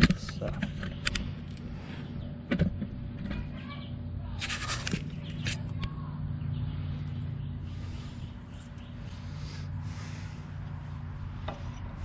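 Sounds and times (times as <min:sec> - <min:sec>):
low hum: 0:00.0 - 0:12.0
scraping rustle: 0:04.4 - 0:05.9.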